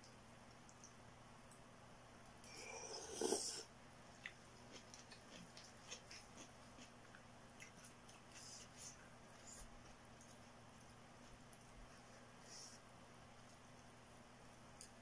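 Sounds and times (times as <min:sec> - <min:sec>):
wet chewing clicks: 0:04.2 - 0:11.8.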